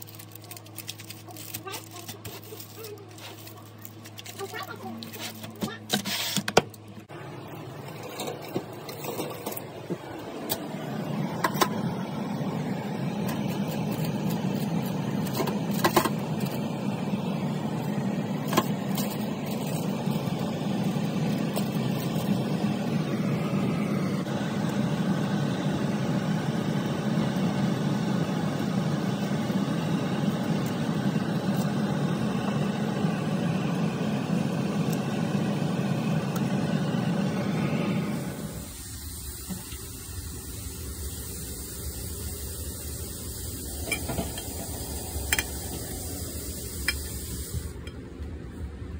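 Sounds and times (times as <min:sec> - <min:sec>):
aluminium foil crinkling: 0:00.0 - 0:06.4
low mechanical hum: 0:00.0 - 0:48.9.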